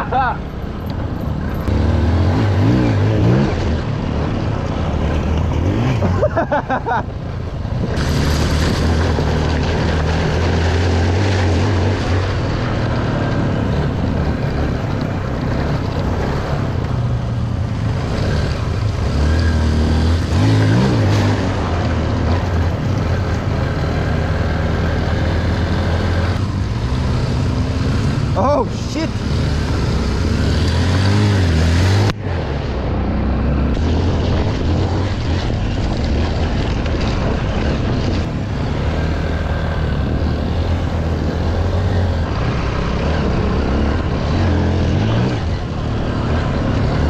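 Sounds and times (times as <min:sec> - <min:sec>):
dirt bike engine revving: 0:01.6 - 0:06.5, 0:17.8 - 0:47.0
water splashing from tyres: 0:08.0 - 0:12.8.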